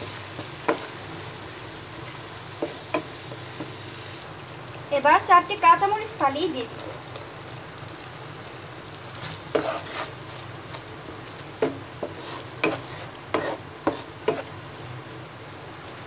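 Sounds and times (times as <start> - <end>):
sauce sizzling in pan: 0.0 - 16.0
spatula scraping pan: 9.2 - 10.9, 11.6 - 14.6.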